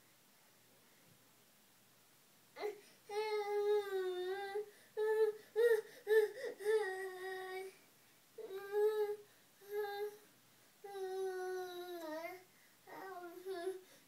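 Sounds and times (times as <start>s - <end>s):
toddler whining sing-song: 2.6s - 7.8s, 8.4s - 14.0s.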